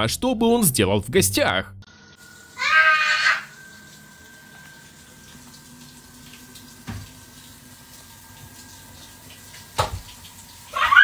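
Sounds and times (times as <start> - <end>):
thin high steady tone: 2.1 - 5.6.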